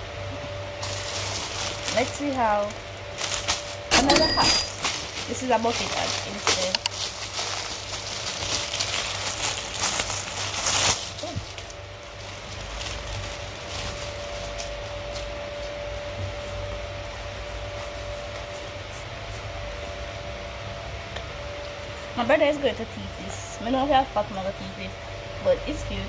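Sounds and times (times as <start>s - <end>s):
steady low hum: 0.0s - 26.0s
plastic packaging crinkling: 0.8s - 15.6s.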